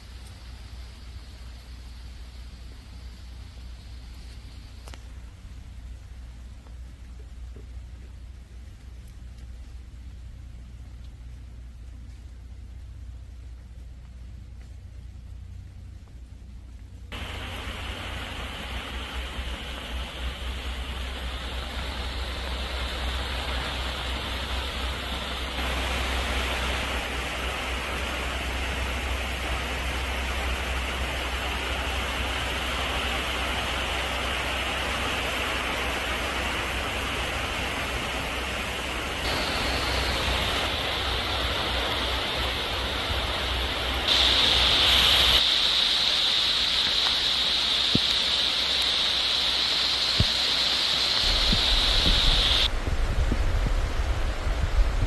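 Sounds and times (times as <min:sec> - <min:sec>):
heavy rain on foliage: 0:00.0 - 0:55.0
low rumble: 0:51.2 - 0:55.0.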